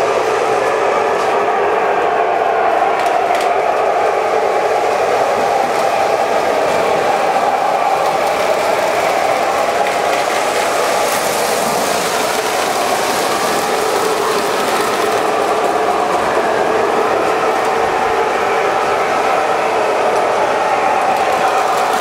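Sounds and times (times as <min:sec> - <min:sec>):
model train motors whirring: 0:02.4 - 0:22.0
metal wheels rolling on track: 0:06.1 - 0:16.5, 0:21.0 - 0:22.0.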